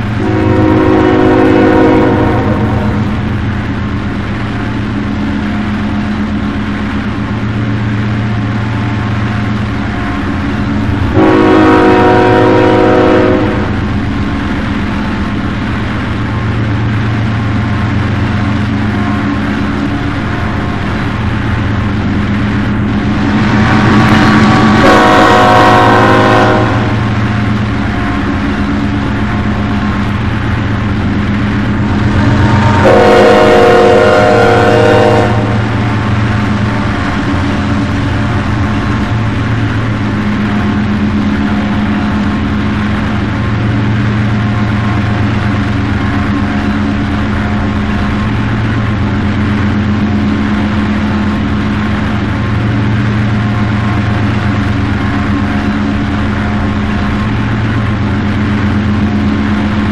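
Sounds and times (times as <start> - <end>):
diesel locomotives growling: 0.0 - 59.9
multi-note train horn: 0.2 - 3.2, 11.2 - 13.9, 24.6 - 27.2, 32.2 - 36.2.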